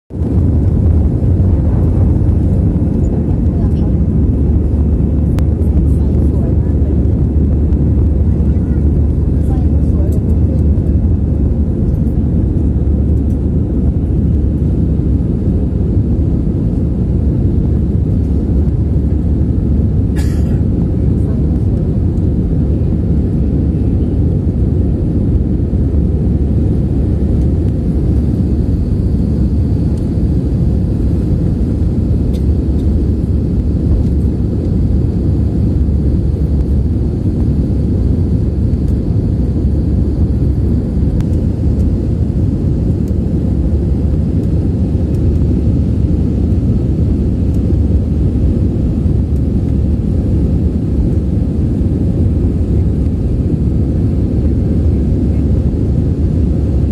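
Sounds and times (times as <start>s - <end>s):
rushing air: 0.1s - 5.8s
jet engines rumbling: 0.1s - 56.9s.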